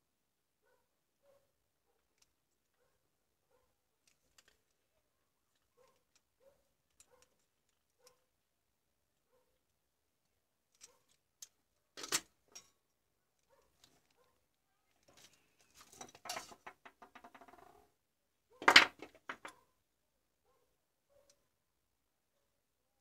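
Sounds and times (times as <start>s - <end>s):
clatter of parts: 4.0s - 4.8s, 10.7s - 12.7s, 14.9s - 17.6s, 18.6s - 19.6s.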